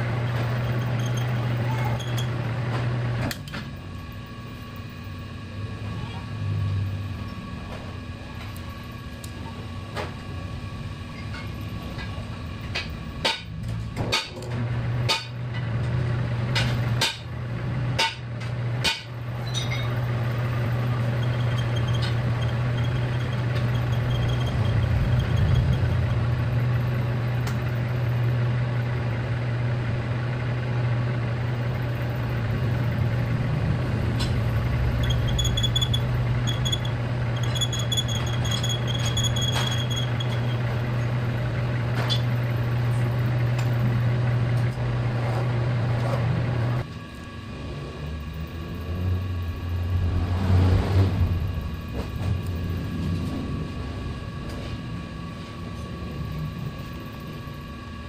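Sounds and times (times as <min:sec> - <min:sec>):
metal lathe humming: 0:00.0 - 0:03.2, 0:19.2 - 0:46.9
thin high squeal: 0:20.8 - 0:26.2, 0:34.5 - 0:40.8.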